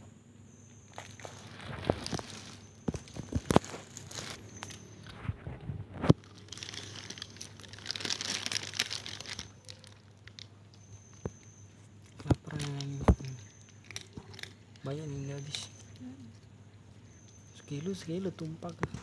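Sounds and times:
plastic bag crinkling: 0:00.9 - 0:05.2, 0:06.0 - 0:11.3, 0:12.0 - 0:15.8.

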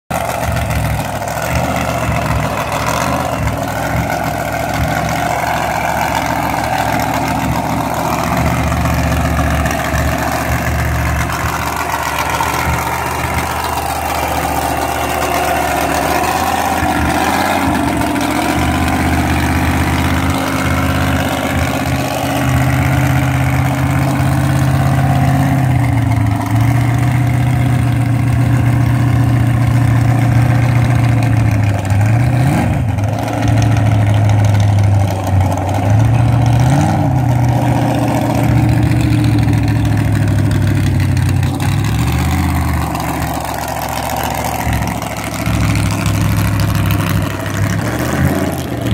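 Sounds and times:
engine idling: 0:00.1 - 0:48.9.

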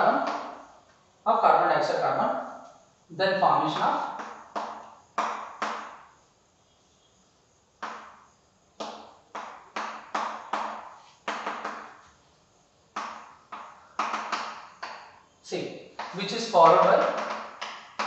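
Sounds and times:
chalk knocking on blackboard: 0:03.7 - 0:06.1, 0:07.8 - 0:12.1, 0:13.0 - 0:15.2, 0:16.0 - 0:18.0.

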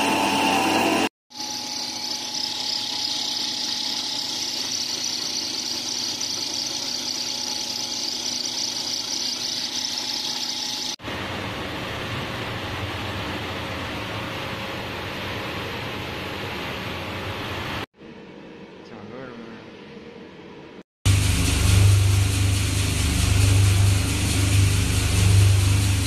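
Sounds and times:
low machine drone: 0:21.1 - 0:26.0
machinery hissing whirr: 0:21.1 - 0:26.0.

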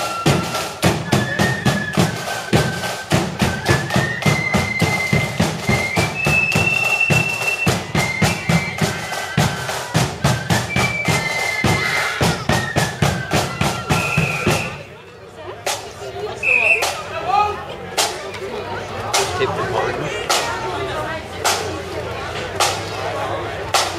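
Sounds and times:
rapid drum strokes: 0:00.0 - 0:14.9
wind instruments melody: 0:00.0 - 0:15.0, 0:15.6 - 0:17.1.

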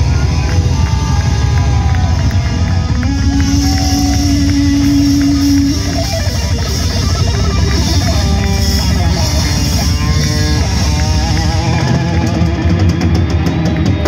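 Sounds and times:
live heavy rock band: 0:00.0 - 0:14.0
long held bending note: 0:02.7 - 0:12.4.

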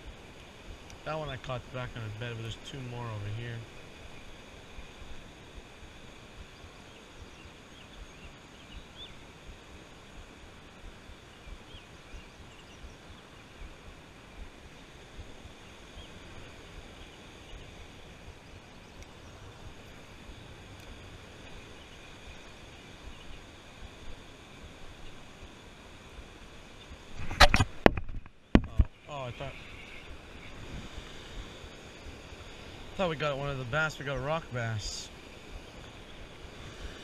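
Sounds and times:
shallow river flowing: 0:00.0 - 0:37.0
faint bird chirps: 0:06.5 - 0:09.2, 0:11.2 - 0:13.8, 0:21.4 - 0:23.8, 0:29.0 - 0:30.6.

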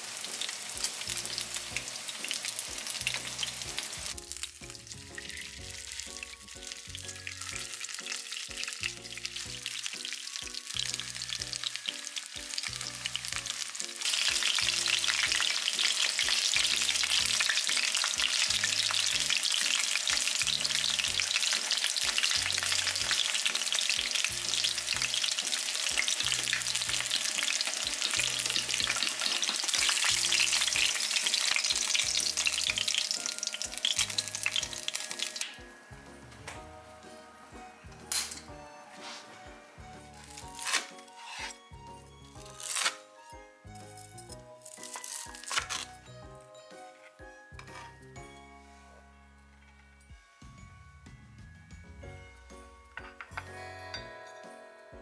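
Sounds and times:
chicken frying in hot oil: 0:00.0 - 0:35.7, 0:40.2 - 0:41.5
soft background music: 0:00.0 - 0:55.0.

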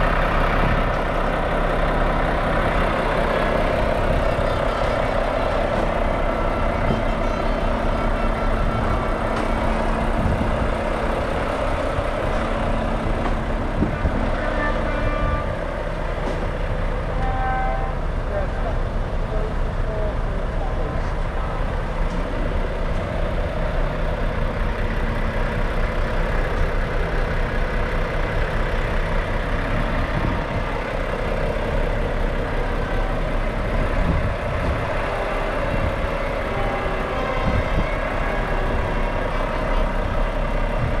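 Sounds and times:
diesel truck engine idling: 0:00.0 - 0:41.0.

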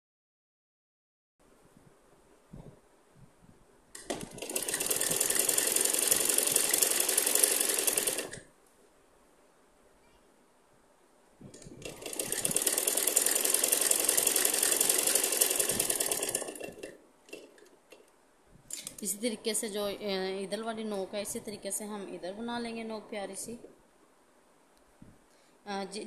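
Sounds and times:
sewing machine stitching: 0:04.0 - 0:08.4, 0:11.6 - 0:18.1.

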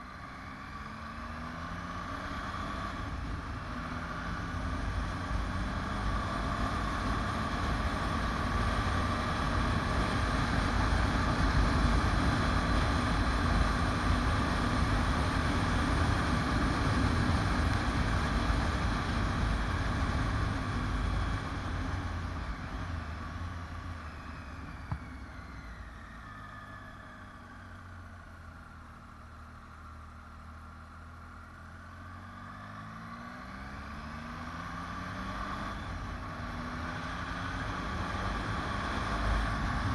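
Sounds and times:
motorcycle engine revving: 0:32.2 - 0:39.9.

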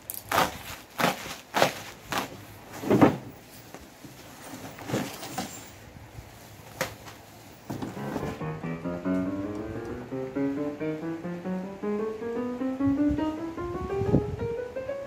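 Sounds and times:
bubble wrap crinkling and tearing: 0:00.0 - 0:02.7.

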